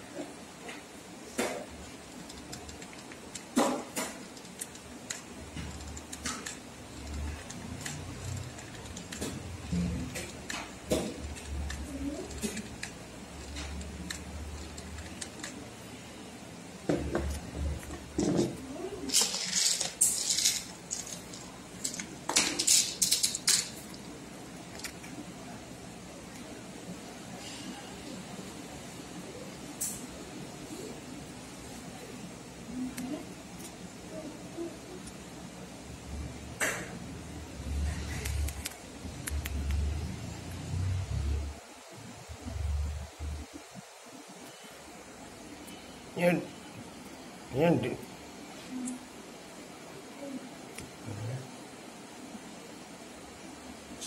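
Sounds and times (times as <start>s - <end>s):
craft tools clicking and tapping: 2.2s - 15.6s
beads rattling in plastic box: 19.1s - 23.8s.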